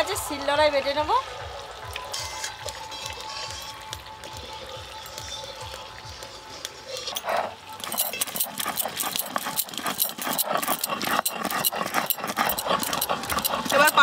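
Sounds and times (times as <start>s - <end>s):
stone roller crushing spices: 7.2s - 14.0s.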